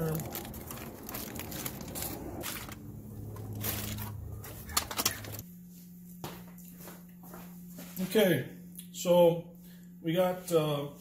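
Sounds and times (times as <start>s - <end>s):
aluminium foil crinkling: 0.0s - 5.4s
steady low hum: 0.0s - 11.0s.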